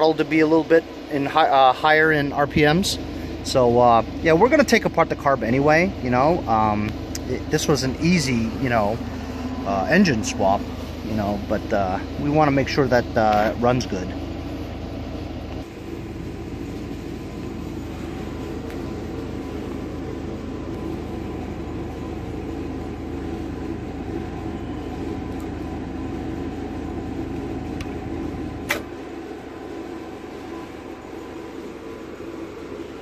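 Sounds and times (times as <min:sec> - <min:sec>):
low mechanical drone: 0:00.0 - 0:33.0
sharp click: 0:28.7 - 0:28.9.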